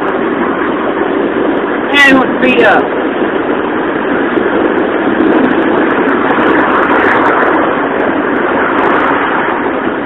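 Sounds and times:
car road noise: 0.0 - 10.0.

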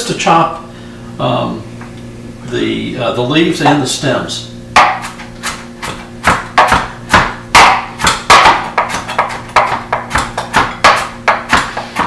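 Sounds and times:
knife chopping on plastic board: 4.8 - 12.0.

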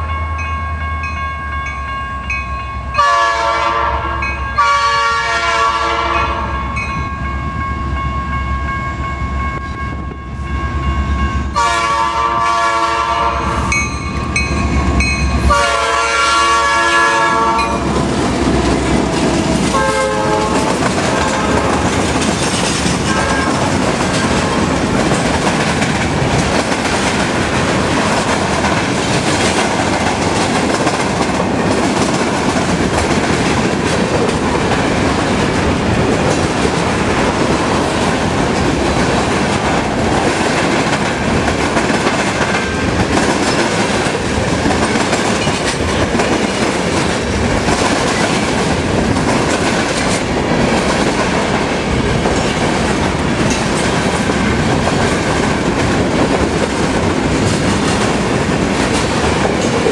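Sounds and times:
train cars rumbling past: 0.0 - 59.9
locomotive air horn: 3.0 - 6.6, 11.5 - 13.7, 15.4 - 17.9, 19.7 - 21.9, 23.1 - 23.6
steel wheels clattering on rails: 17.6 - 59.9.

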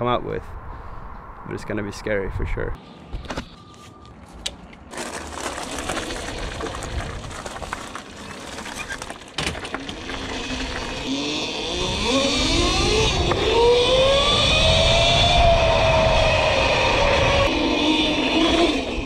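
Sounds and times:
tyres crunching on gravel: 3.8 - 11.1
electric motor whine rising: 9.9 - 19.0
wind rumble on microphone: 11.8 - 19.0.

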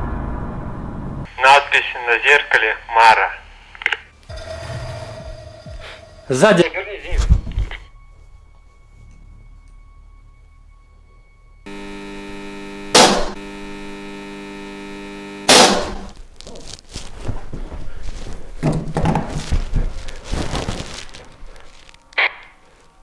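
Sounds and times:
electrical hum: 11.6 - 23.0
loud bangs: 15.5 - 16.1
rustling and knocking: 16.4 - 22.0.

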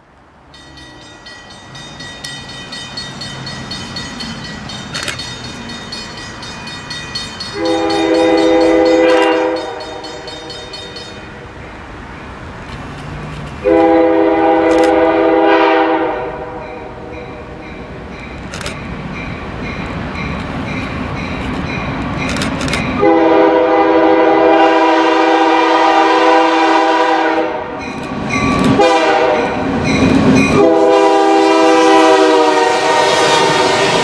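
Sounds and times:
oncoming train rumble: 0.0 - 34.0
locomotive horn blasts: 7.5 - 10.7, 13.6 - 17.0, 23.0 - 27.8, 28.8 - 29.6, 30.5 - 34.0.

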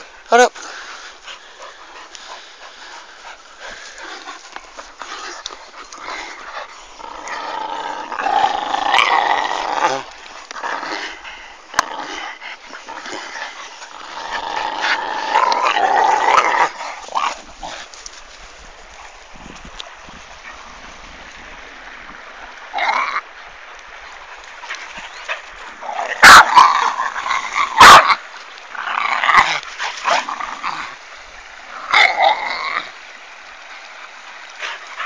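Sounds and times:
dogs growling: 0.0 - 18.3, 24.1 - 33.0.

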